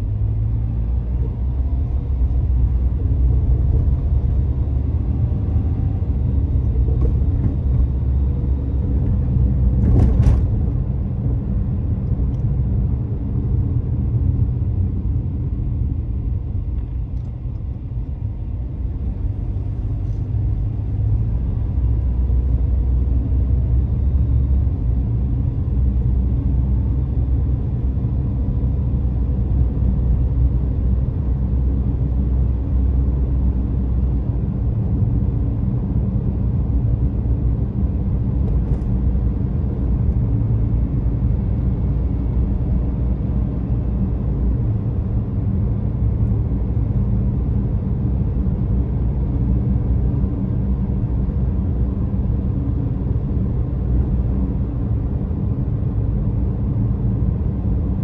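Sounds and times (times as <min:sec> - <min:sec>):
car cabin rumble: 0:00.0 - 0:28.6.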